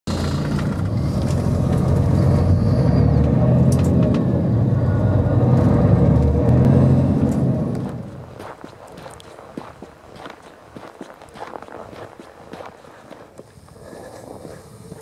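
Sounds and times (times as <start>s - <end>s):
vehicle engine droning: 0.1s - 10.9s.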